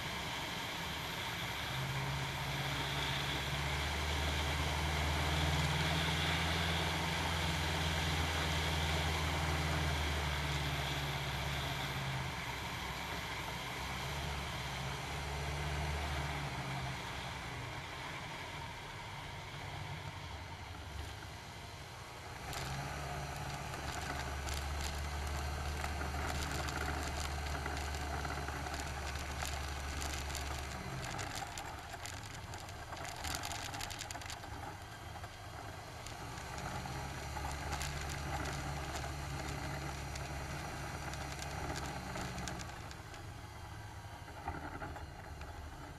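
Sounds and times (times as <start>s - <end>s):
ultralight plane engine and propeller: 0.0s - 45.9s
knocks and rattles of rolling aircraft: 23.3s - 43.2s, 44.3s - 45.9s.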